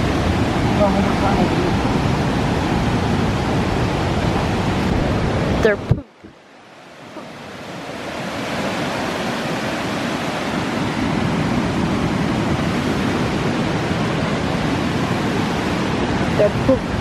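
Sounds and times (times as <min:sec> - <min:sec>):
river water rushing: 0:00.0 - 0:17.0.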